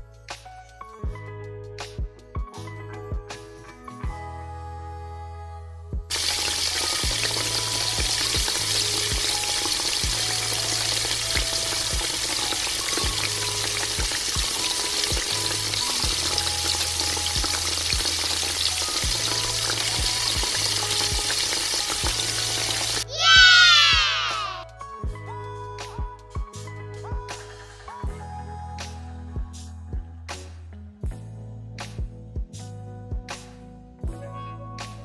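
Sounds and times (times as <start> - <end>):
soft music: 0.0 - 35.0
hot oil sizzling: 6.1 - 24.3.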